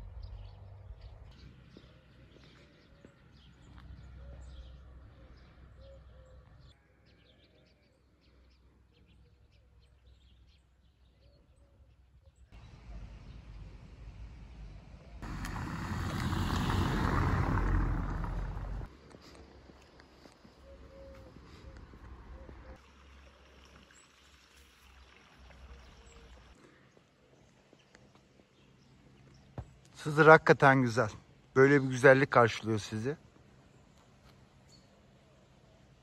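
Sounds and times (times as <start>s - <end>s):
low rumble: 12.6s - 18.9s
faint bird chirps: 20.6s - 22.8s.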